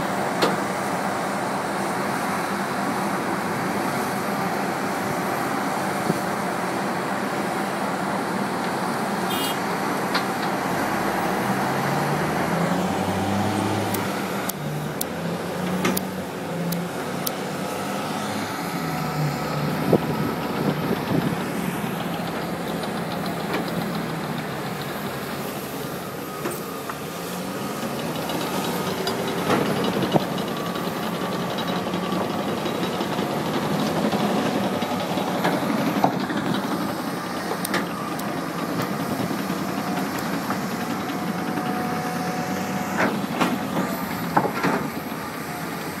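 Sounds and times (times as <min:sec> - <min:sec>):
diesel engine droning: 0:00.0 - 0:46.0
metallic clanks of bucket and tracks: 0:27.8 - 0:46.0.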